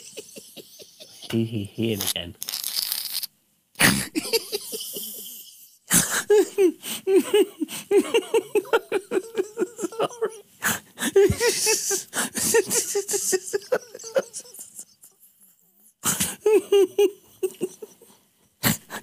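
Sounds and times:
man laughing uncontrollably: 0.0s - 1.4s, 3.8s - 10.4s, 11.2s - 15.2s, 16.1s - 18.0s.

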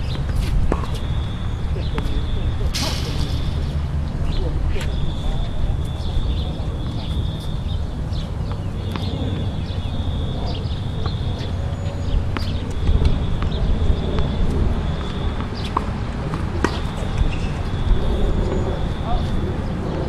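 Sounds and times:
balls bouncing on court: 0.0s - 2.5s, 8.4s - 9.7s, 10.5s - 19.2s
tennis balls struck by rackets: 0.0s - 5.2s, 8.1s - 17.9s
high whine: 0.0s - 20.0s
steady low rumble: 0.0s - 20.0s.

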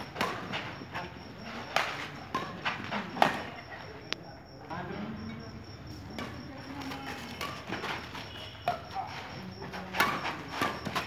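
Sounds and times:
rackets hitting shuttlecock: 0.0s - 0.8s, 1.7s - 3.6s, 6.2s - 9.1s, 9.9s - 11.0s.

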